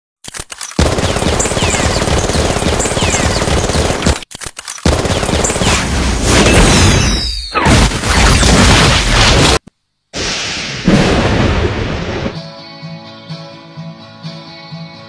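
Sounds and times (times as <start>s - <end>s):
machine-gun fire: 0.8s - 9.6s.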